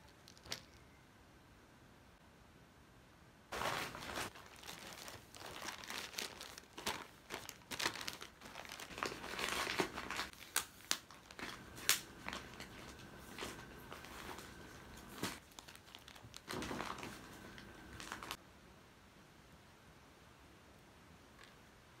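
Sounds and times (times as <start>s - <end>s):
plastic bag crinkling: 3.5s - 18.4s.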